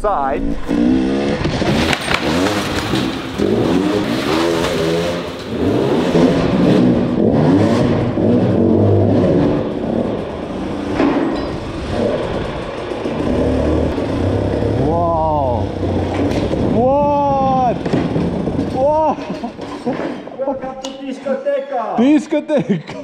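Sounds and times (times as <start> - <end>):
motorcycle engine revving: 0.4 - 20.0
sharp clack: 1.4 - 5.6.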